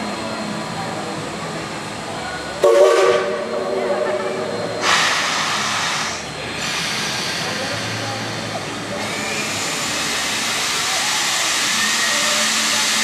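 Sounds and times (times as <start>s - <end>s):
steam whistle blast: 2.6s - 3.5s
steam hissing: 4.3s - 13.0s.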